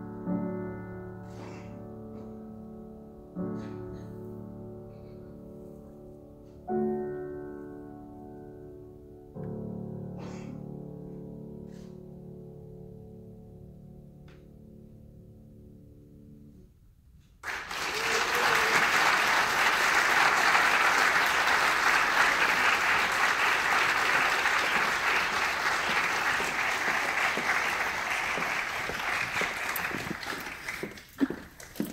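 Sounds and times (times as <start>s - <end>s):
audience applause: 17.4s - 31.9s.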